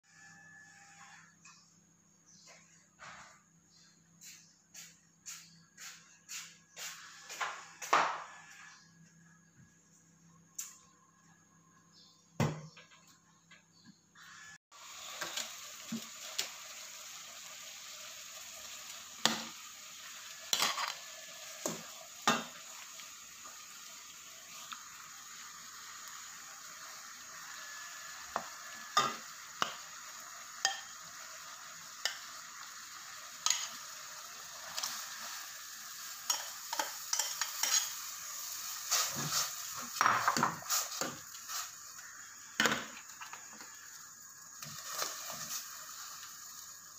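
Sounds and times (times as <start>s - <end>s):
steady hiss: 14.7s - 46.9s
metal spoon clinking on a pot: 36.3s - 38.0s.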